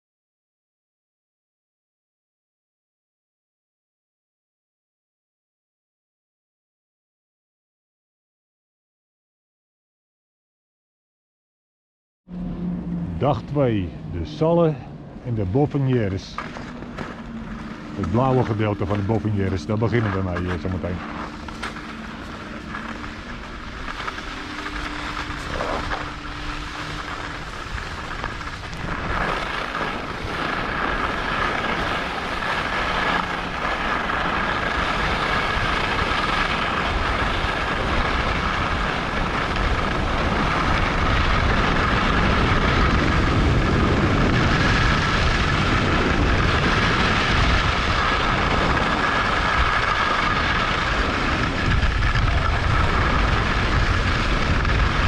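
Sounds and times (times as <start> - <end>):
wind on microphone: 12.3 - 55.0
skis running on snow: 15.4 - 55.0.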